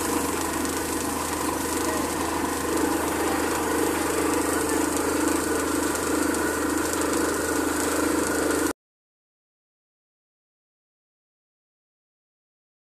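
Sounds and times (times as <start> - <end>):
compressed air blowing water: 0.0 - 8.7
drilling rig engine: 0.0 - 8.7.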